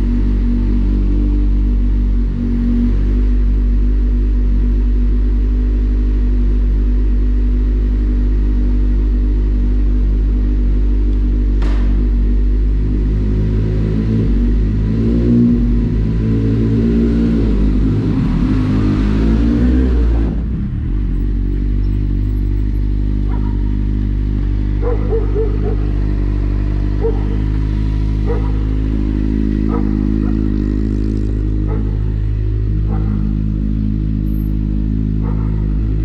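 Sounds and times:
motorcycle engine revving: 0.0s - 36.0s
motorcycle engine idling: 20.4s - 36.0s.

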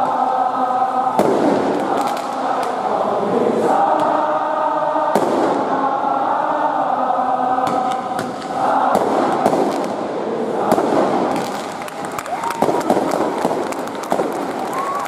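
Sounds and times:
crowd chanting: 0.0s - 15.0s
firework bangs: 1.2s - 2.8s, 5.1s - 5.7s, 7.7s - 15.0s.

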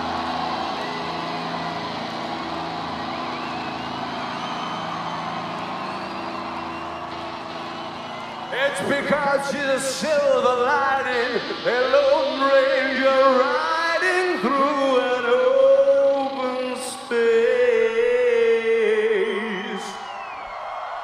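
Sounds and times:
person singing: 8.6s - 20.0s.

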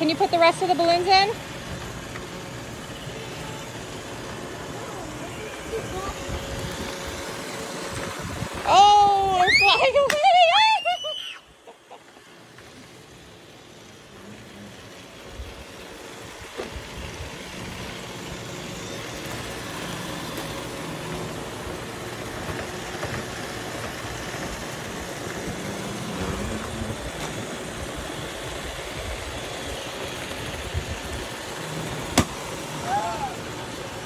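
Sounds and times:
robot vacuum motor hum: 0.0s - 34.0s
wind noise: 8.0s - 8.7s.

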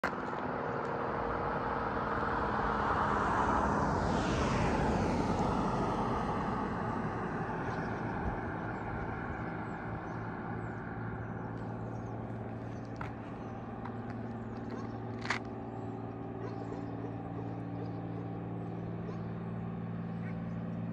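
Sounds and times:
distant traffic hum: 0.0s - 20.9s
car passing by: 0.8s - 11.7s.

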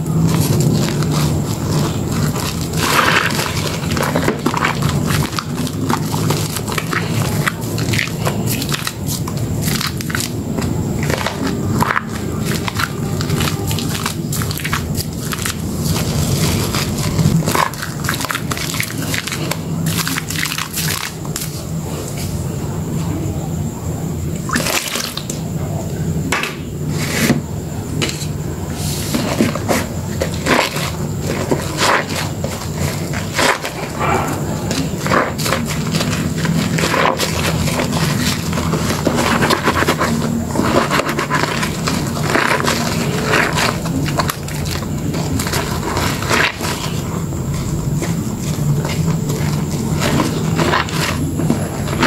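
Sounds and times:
hands squelching soap lather: 0.0s - 22.3s, 24.3s - 52.0s
sponge squelching in lather: 28.7s - 52.0s.

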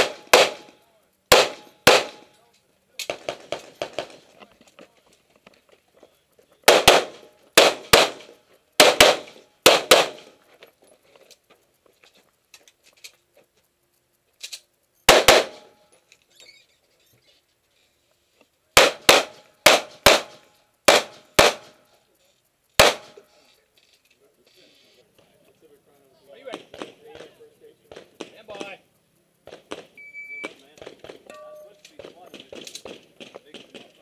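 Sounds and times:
pistol shots: 0.0s - 2.4s, 3.0s - 4.3s, 6.6s - 10.4s, 15.1s - 15.8s, 18.8s - 21.8s, 22.8s - 23.2s, 29.4s - 31.3s.

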